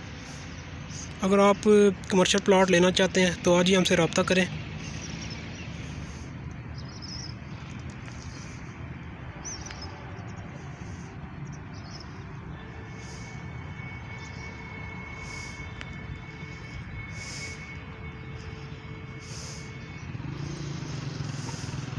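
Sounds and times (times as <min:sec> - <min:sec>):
bird chirps: 0:04.6 - 0:08.7, 0:09.4 - 0:21.8
faint high whine: 0:09.7 - 0:21.9.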